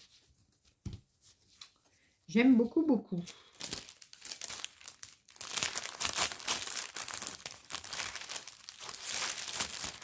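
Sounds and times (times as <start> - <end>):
plastic packaging crinkling: 3.2 - 10.0.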